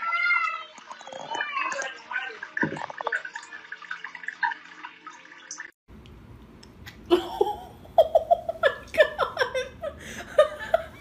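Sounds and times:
person laughing: 7.1 - 11.0.

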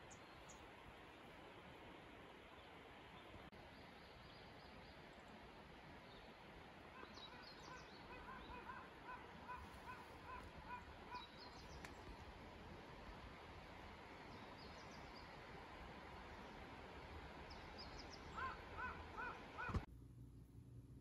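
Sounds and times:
faint outdoor ambience: 0.0 - 21.0
bird calling and chirping: 7.0 - 11.9, 17.5 - 19.8.

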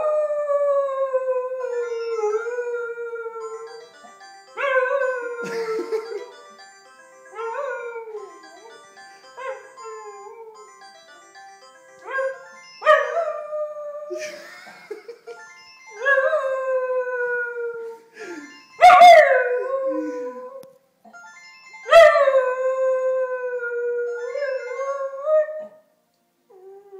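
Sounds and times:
telephone melodic ringtone: 1.6 - 20.4, 21.1 - 25.3.

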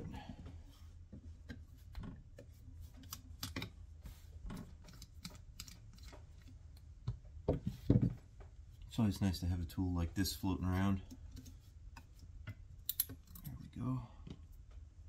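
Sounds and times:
small metal parts clicking: 12.8 - 13.6.

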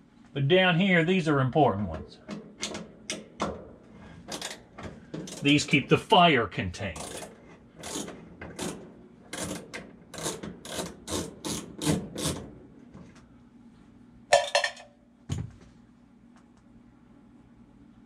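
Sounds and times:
screwdriver turning screw: 7.0 - 8.7.

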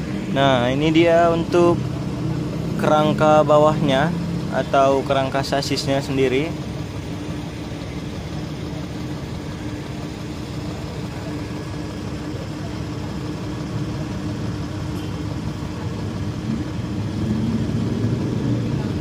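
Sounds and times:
engine idling: 0.0 - 19.0.

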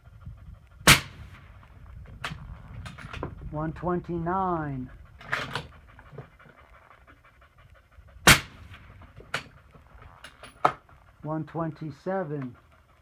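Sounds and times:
suppressed rifle shot: 0.8 - 1.6, 8.2 - 9.5.

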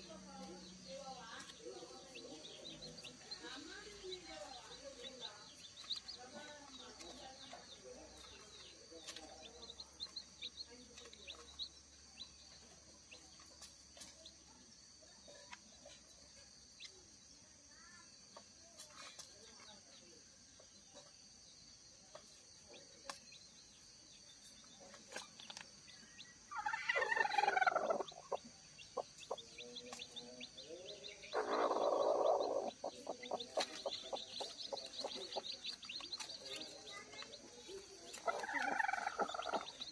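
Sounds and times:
chicks peeping: 0.0 - 17.3, 18.2 - 39.9
hen calling: 26.5 - 28.4.

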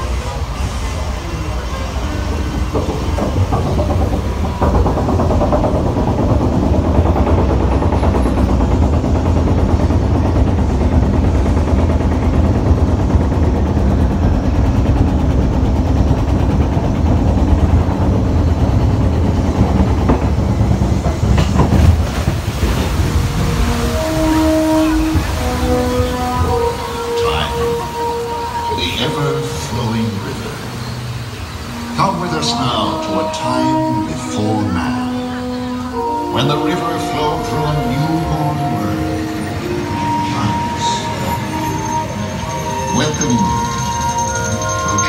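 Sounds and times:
chain lift clattering rumble: 2.6 - 27.1, 41.2 - 45.0.

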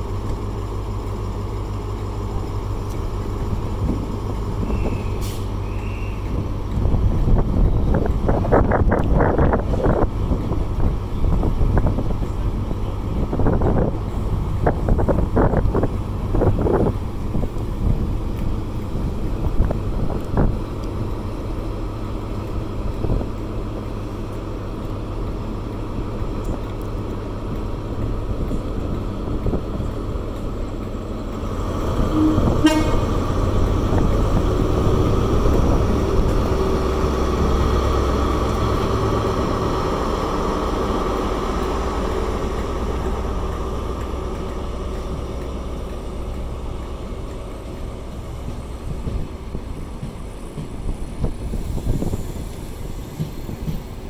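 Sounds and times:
diesel train engine rumble: 0.0 - 54.0
train horn toot: 4.6 - 6.2, 32.0 - 33.3.

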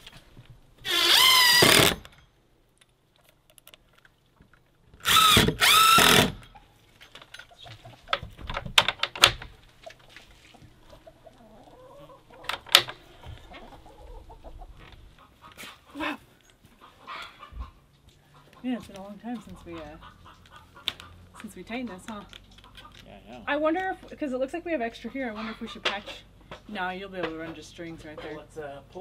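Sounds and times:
cordless drill driving screws: 0.8 - 2.1, 5.0 - 6.4.

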